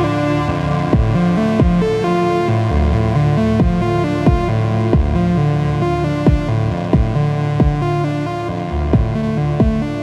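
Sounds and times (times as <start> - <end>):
electronic kick drum hits: 0.0 - 5.4, 6.3 - 8.0, 9.0 - 9.9
synthesizer arpeggio: 0.0 - 5.5
sustained synth drones: 0.0 - 9.4.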